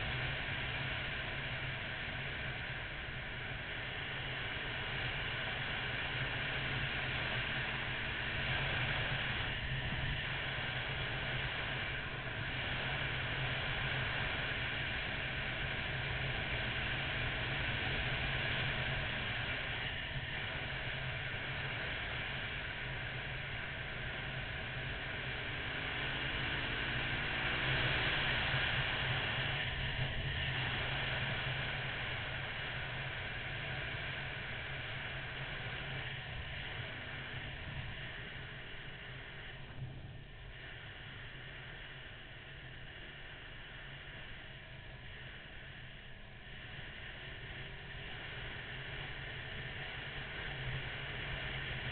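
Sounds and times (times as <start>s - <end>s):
motorcycle engine humming: 0.0s - 51.9s.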